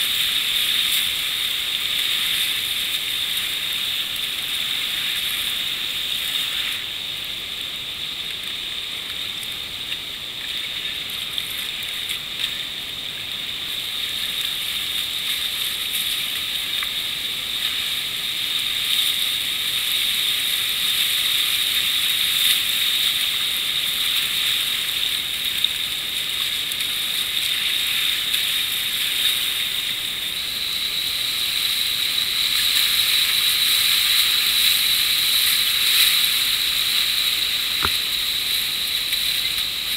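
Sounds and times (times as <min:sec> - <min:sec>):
rushing river rapids: 0:13.0 - 0:39.9.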